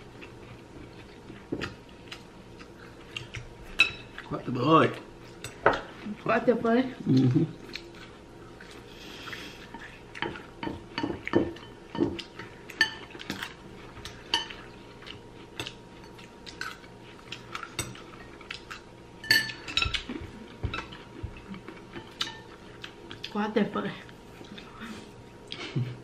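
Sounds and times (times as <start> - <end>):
utensils clinking against ceramic bowls: 19.2 - 20.0.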